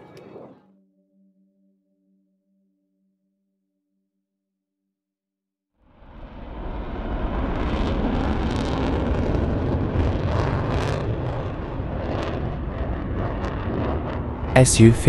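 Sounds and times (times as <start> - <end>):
jet engine rumble with crackles: 6.1 - 15.0.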